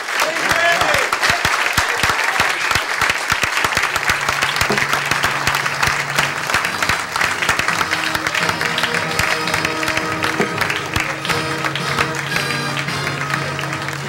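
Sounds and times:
audience applauding: 0.0 - 14.0
held music notes: 3.9 - 14.0.

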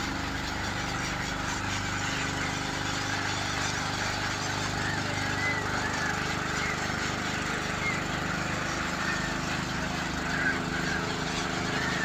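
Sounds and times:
gulls calling: 0.0 - 12.0
low engine hum: 0.0 - 12.0.

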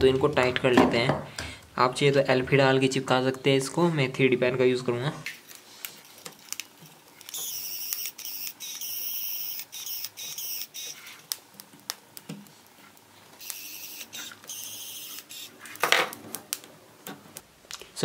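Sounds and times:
pen motor whining: 7.3 - 11.2, 13.4 - 15.6.

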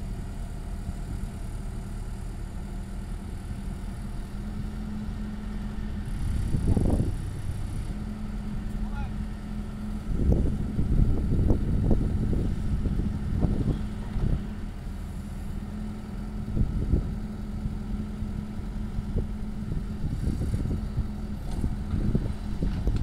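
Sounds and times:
diesel engine humming: 0.0 - 23.0
uneven rumble: 6.0 - 7.7.

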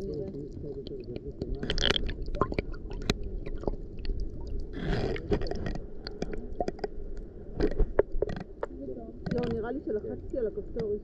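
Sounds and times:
gurgling bursts of water: 0.0 - 8.7
underwater clicks and crackles: 0.0 - 11.0
underwater low rumble: 0.0 - 11.0.

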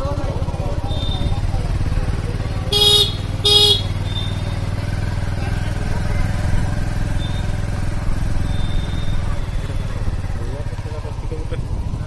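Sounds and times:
motorcycle engine running: 0.0 - 12.0
horn beep: 2.7 - 4.5, 7.1 - 7.6, 8.4 - 10.1.

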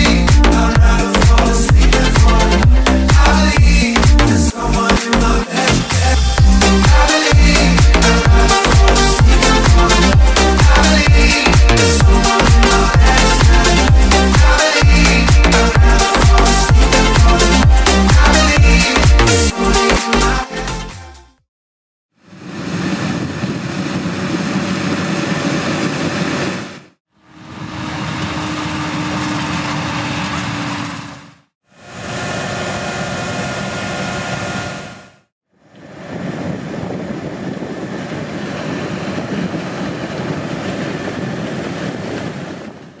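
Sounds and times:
combine harvester machinery: 22.3 - 35.2.

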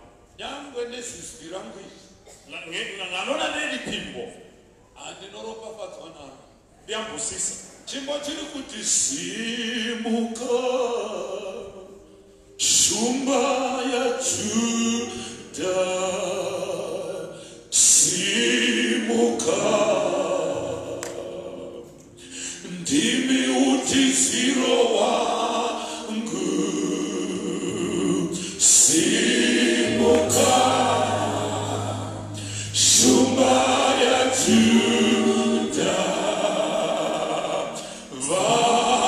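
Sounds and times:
choir singing unaccompanied: 8.8 - 12.0, 12.6 - 39.0.

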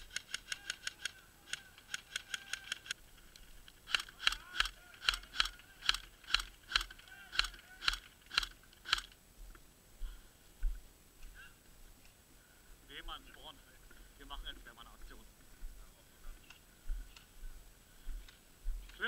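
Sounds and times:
airsoft rifle shots: 3.8 - 9.2.

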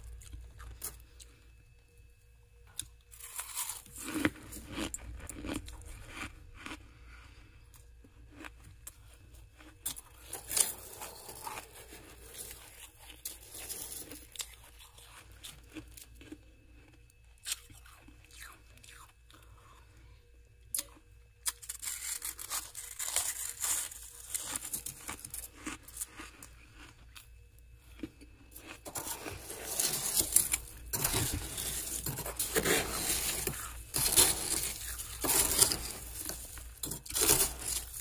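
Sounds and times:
frost crunching: 3.1 - 7.5, 9.6 - 19.0, 21.4 - 26.9, 27.9 - 38.0.

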